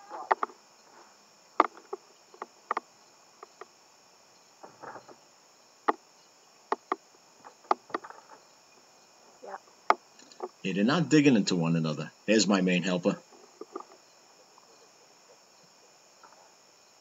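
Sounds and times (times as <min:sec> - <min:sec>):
insects buzzing: 0:00.0 - 0:17.0.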